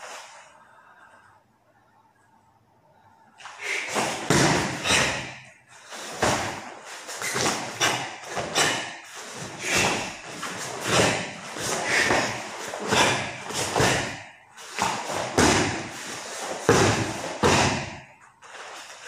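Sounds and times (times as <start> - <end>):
bare feet thudding on foam mats: 3.9 - 5.4, 6.1 - 18.1.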